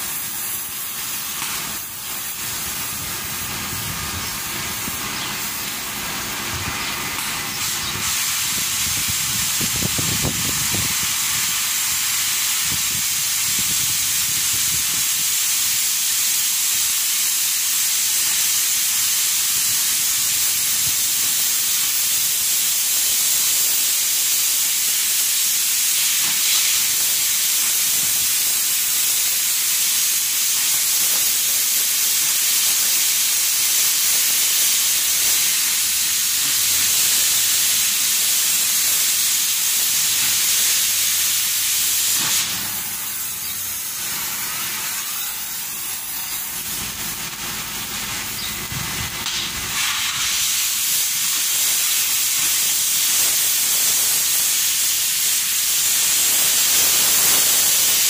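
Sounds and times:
welding arc hissing on steel: 0.0 - 58.0.

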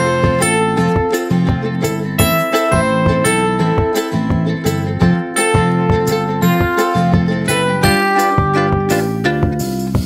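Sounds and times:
struck ringing notes: 2.2 - 9.5.

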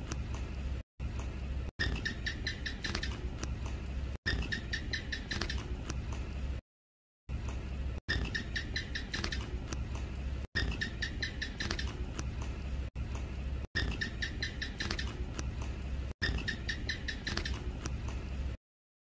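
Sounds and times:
gecko chirping: 1.8 - 3.4, 4.3 - 5.8, 8.1 - 9.8, 10.6 - 12.1, 13.8 - 15.4, 16.2 - 17.8.

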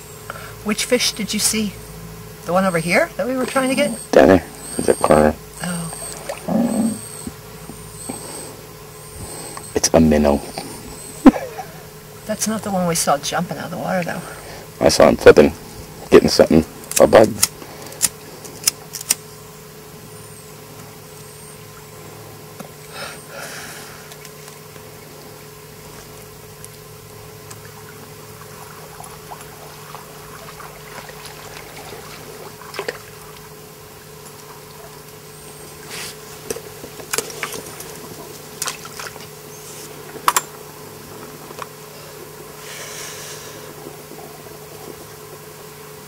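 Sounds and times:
steady low hum: 0.0 - 46.0
woman exhaling smoke: 41.9 - 43.8.

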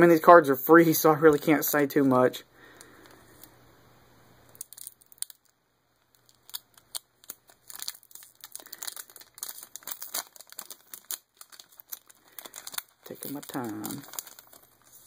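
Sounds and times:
wrapper crinkling and tearing: 4.6 - 15.0.

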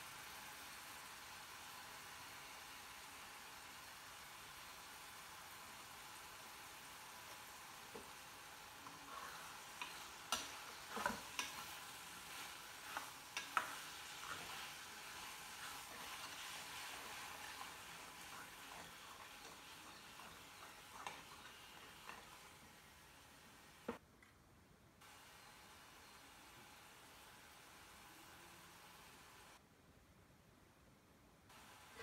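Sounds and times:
faint sizzle: 0.0 - 24.0, 25.0 - 29.6, 31.5 - 32.0
spatula stirring vegetables in pan: 0.0 - 24.0.

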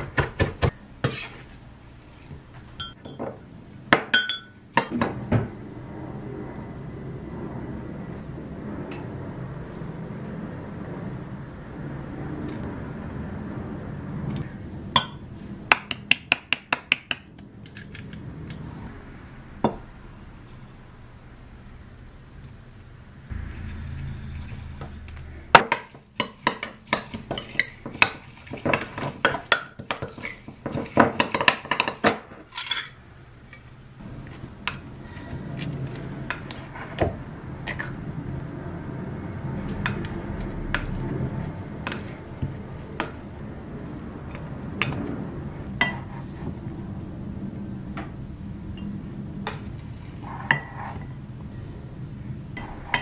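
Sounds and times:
spoon clinking in glass mug: 4.2 - 4.6.

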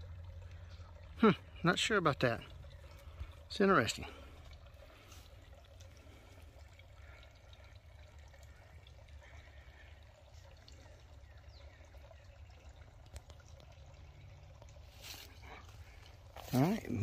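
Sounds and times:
faint water trickle: 0.0 - 17.0.

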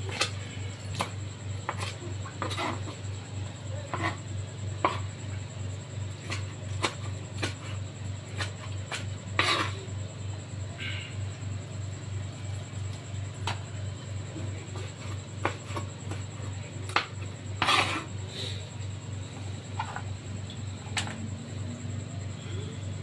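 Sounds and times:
knife scraping cutting board: 0.0 - 3.1, 3.8 - 5.1, 6.1 - 9.9, 14.4 - 18.5
steady low hum: 0.0 - 23.0.

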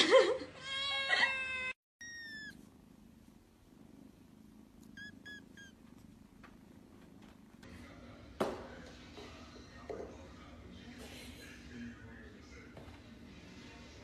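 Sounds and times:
cat meowing: 0.7 - 2.7, 4.9 - 5.8
kitten mewing: 1.2 - 2.7.

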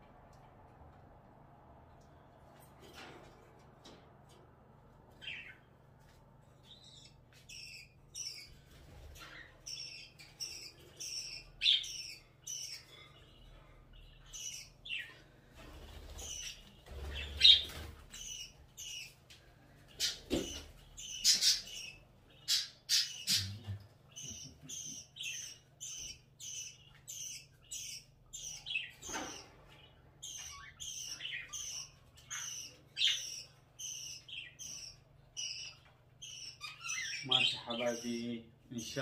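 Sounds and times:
budgerigars chirping: 6.7 - 19.2, 19.8 - 39.0.

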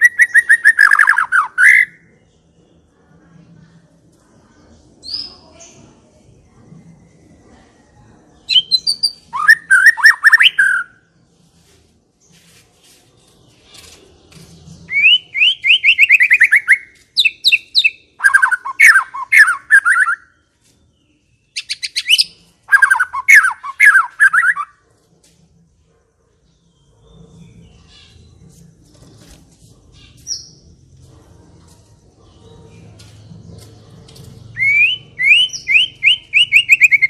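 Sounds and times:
bird singing trills: 0.0 - 2.5, 8.4 - 11.0, 13.7 - 20.4, 21.0 - 24.8, 32.4 - 37.0
faint low hum: 1.9 - 10.3, 24.6 - 36.3.

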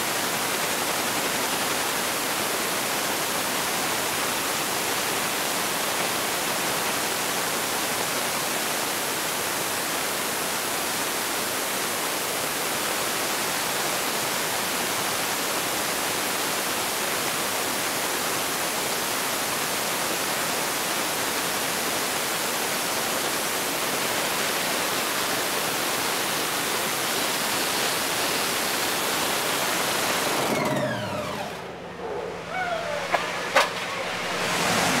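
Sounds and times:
engine winding down: 29.3 - 35.0
dragster engine roaring: 29.8 - 35.0.

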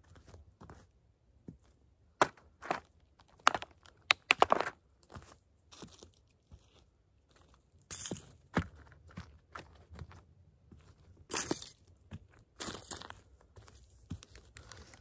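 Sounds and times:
toy truck cracking as crushed: 3.5 - 4.7.

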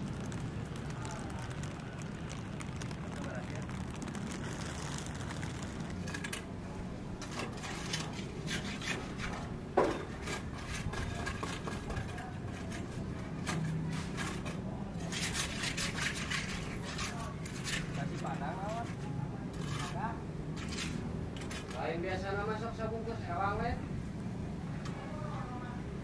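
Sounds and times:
hand tools scraping: 7.2 - 18.2, 18.8 - 21.8.

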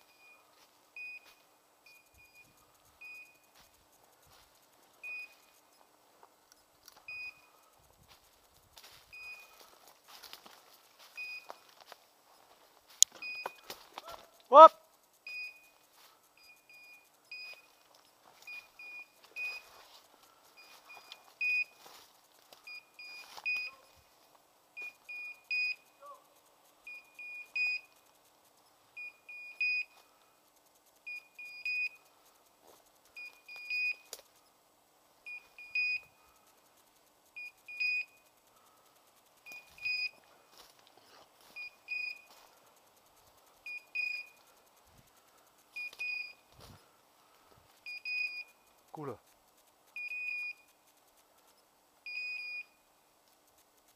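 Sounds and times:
high electronic beeps: 0.0 - 3.6, 5.0 - 5.8, 7.1 - 7.5, 9.1 - 9.6, 11.1 - 11.7, 13.1 - 13.7, 15.2 - 17.8, 18.4 - 19.7, 20.6 - 21.8, 22.6 - 24.0, 24.8 - 26.0, 26.8 - 28.0, 29.0 - 30.0, 31.1 - 32.1, 33.2 - 34.1, 35.3 - 36.2, 37.4 - 38.2, 39.4 - 40.2, 41.6 - 42.3, 43.6 - 44.4, 45.8 - 46.4, 47.8 - 48.6, 50.0 - 50.8, 52.1 - 52.8
faint rustling of brush: 0.0 - 53.9.

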